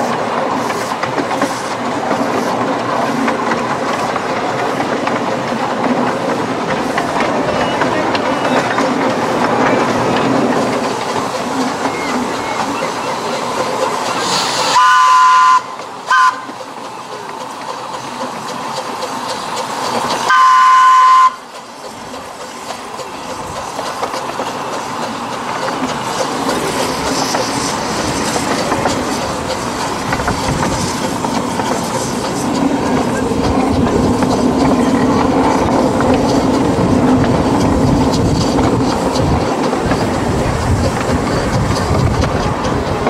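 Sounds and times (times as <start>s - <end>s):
locomotive running noise: 0.0s - 43.0s
train wheels clattering on rails: 0.0s - 43.0s
steam whistle blasts: 14.7s - 16.5s, 20.3s - 21.4s.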